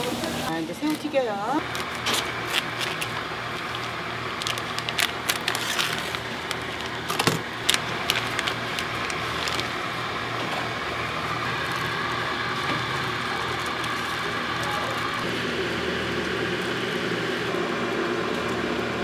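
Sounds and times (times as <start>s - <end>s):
steady background noise: 0.0s - 19.0s
scissors snipping plastic film: 0.8s - 9.8s
plastic film crinkling: 0.8s - 15.3s.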